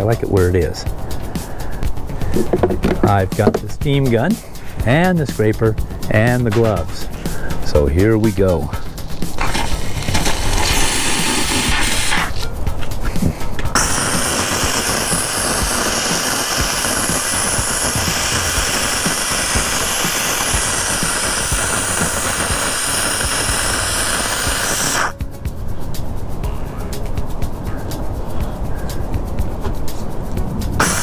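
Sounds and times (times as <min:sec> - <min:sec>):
steam gun hissing: 0:08.7 - 0:25.2, 0:30.8 - 0:31.0.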